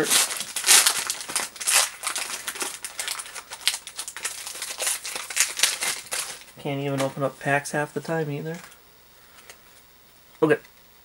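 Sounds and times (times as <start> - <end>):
foil card pack crinkling: 0.0 - 8.8.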